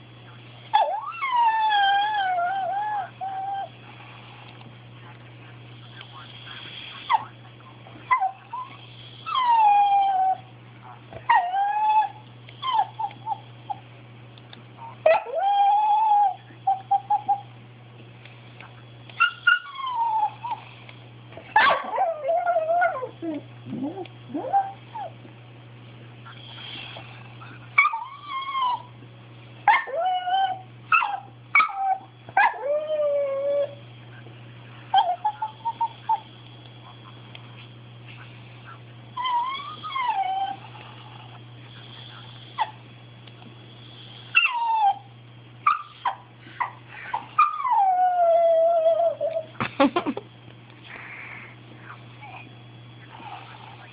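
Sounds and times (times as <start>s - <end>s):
dog whining and yipping: 0.7s - 3.7s, 8.1s - 10.5s, 11.3s - 13.8s, 14.8s - 17.4s, 19.2s - 20.6s, 21.6s - 25.2s, 27.8s - 28.9s, 29.7s - 33.8s, 34.9s - 36.2s, 39.2s - 40.7s, 44.4s - 49.5s.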